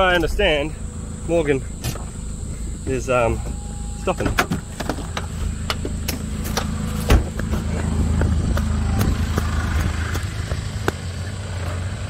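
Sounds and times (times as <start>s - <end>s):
engine running at low speed: 0.0s - 12.0s
vehicle clicks and knocks: 2.8s - 11.7s.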